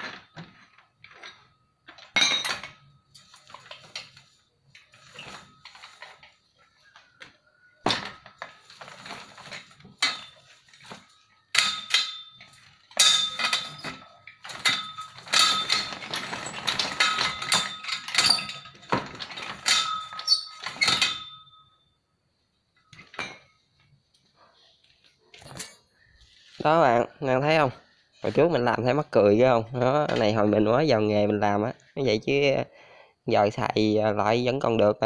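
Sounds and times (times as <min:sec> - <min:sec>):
metal rolling machine clanking: 0:07.9 - 0:21.7.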